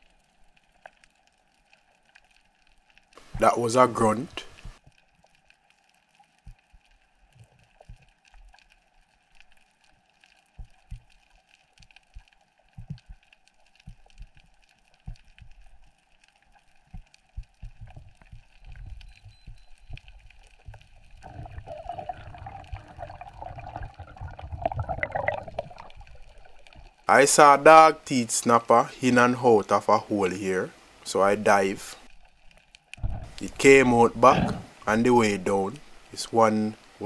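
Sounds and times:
underwater knocks and gurgles: 6.3s - 8.7s, 10.2s - 27.0s, 32.1s - 34.9s
rushing water surge: 21.2s - 26.7s
underwater hiss: 33.1s - 36.2s.

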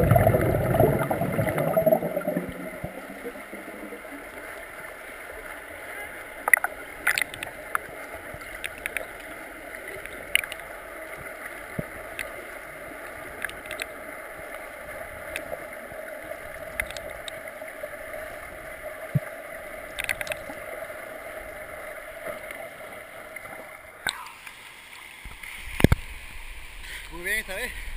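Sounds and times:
muffled underwater hiss: 0.0s - 27.9s
sharp underwater clicks: 6.4s - 9.3s, 9.9s - 10.7s, 11.7s - 12.4s, 13.3s - 14.0s, 15.2s - 15.6s, 16.7s - 17.4s, 19.9s - 20.6s, 24.0s - 24.6s.

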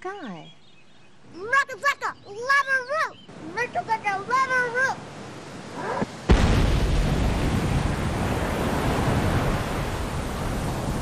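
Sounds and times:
floodwater rushing: 2.5s - 11.0s
dam bursting blast: 6.3s - 8.6s.

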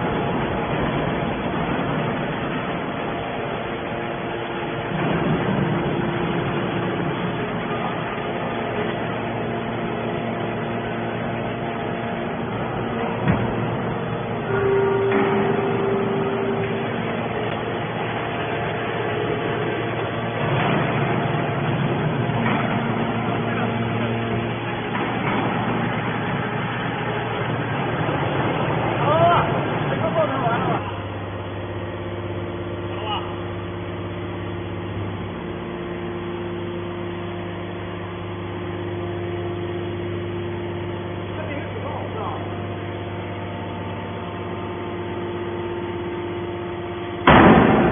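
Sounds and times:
machinery noise: 0.0s - 31.1s, 47.2s - 47.9s
hydraulic pump hum: 0.0s - 47.9s.

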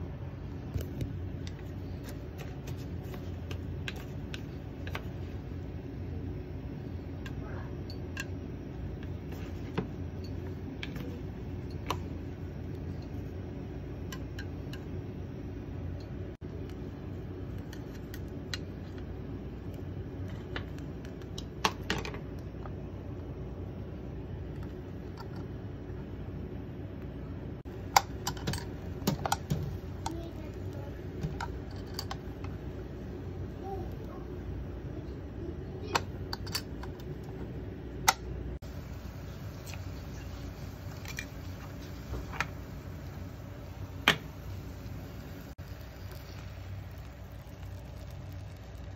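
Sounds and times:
gas burner running: 0.0s - 48.9s
food frying with crackling pops: 0.7s - 5.6s, 7.1s - 22.8s, 27.7s - 34.1s, 38.0s - 48.9s
gas burner rushing: 38.1s - 48.9s.

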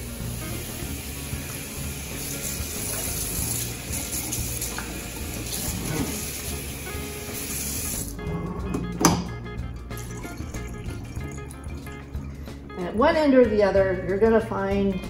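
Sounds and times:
faucet running into sink: 0.0s - 8.2s, 9.9s - 12.5s.

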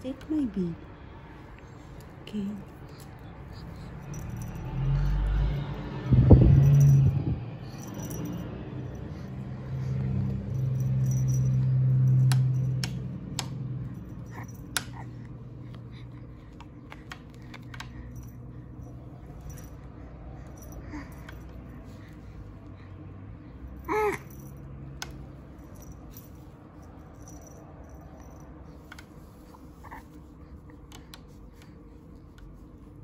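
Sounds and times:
low hum: 0.2s - 16.4s.

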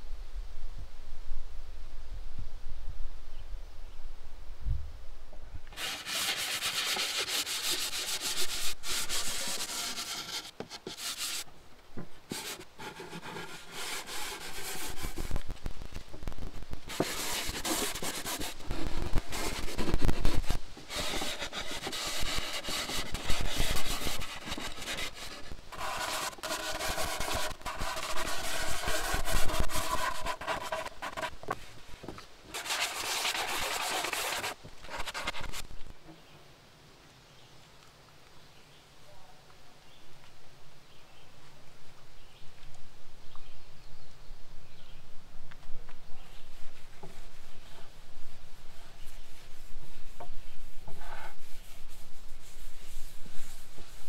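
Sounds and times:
sanding block scraping wood: 5.8s - 11.5s, 12.3s - 15.4s, 16.9s - 31.6s, 32.5s - 35.6s, 48.8s - 54.0s.

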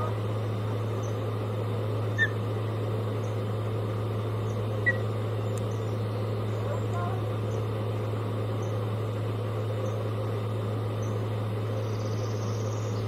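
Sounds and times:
low electrical hum: 0.0s - 13.0s
outdoor background noise: 0.0s - 13.0s
high bird chirps: 4.5s - 5.0s.

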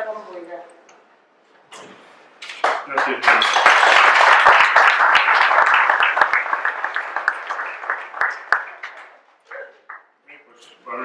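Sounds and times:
audience applause: 2.6s - 9.2s.

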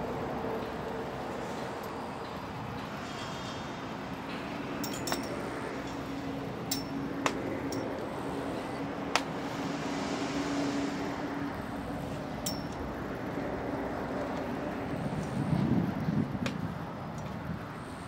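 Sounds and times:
outdoor rumble and hiss: 0.0s - 18.0s
low surge of noise: 2.6s - 16.0s
metallic clicks with ring: 4.8s - 6.0s, 6.6s - 8.0s, 12.4s - 12.8s.

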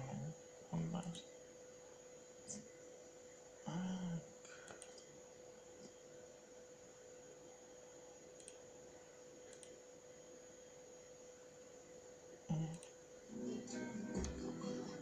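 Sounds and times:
steady electrical hum: 0.0s - 15.0s
small clicks: 4.6s - 5.1s, 8.4s - 8.6s, 9.5s - 9.8s.

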